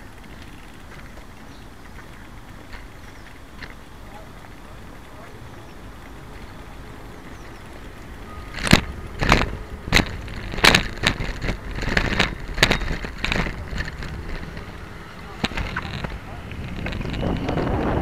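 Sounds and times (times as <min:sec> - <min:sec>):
bicycle knocking and rattling: 0:00.0 - 0:18.0
low rumble: 0:04.2 - 0:18.0.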